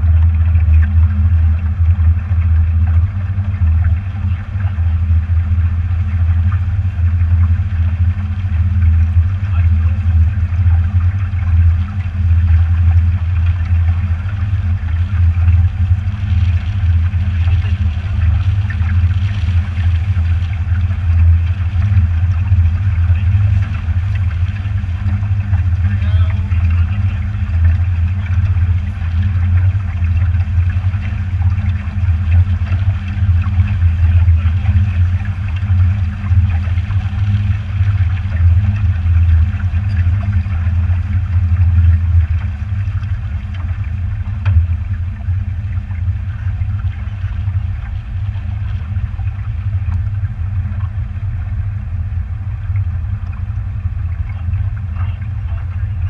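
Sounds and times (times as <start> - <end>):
motorboat engine drone: 0.0 - 56.0
water washing along hull: 0.0 - 56.0.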